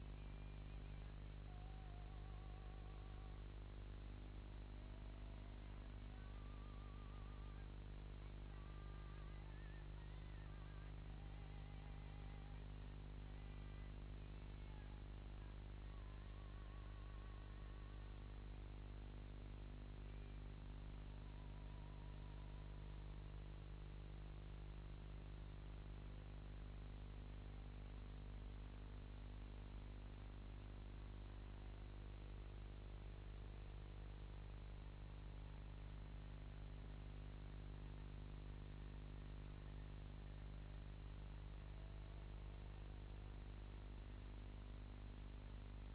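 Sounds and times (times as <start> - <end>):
thin high whine: 0.0 - 23.8
electrical hum: 0.0 - 45.9
faint hiss: 0.0 - 45.9.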